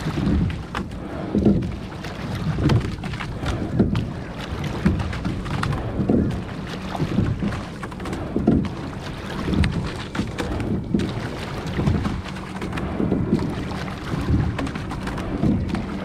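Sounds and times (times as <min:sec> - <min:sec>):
water sloshing at boat hull: 0:00.0 - 0:16.0
wind rumble on microphone: 0:00.0 - 0:16.0.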